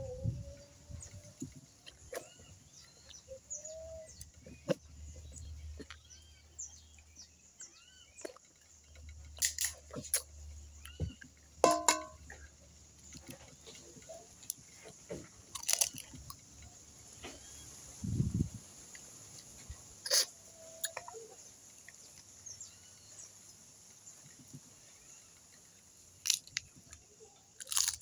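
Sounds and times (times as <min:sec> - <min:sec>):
small birds chirping: 0:00.0 - 0:28.0
crab shells cracking: 0:09.4 - 0:10.2, 0:15.5 - 0:16.4, 0:26.2 - 0:27.0, 0:27.6 - 0:28.0.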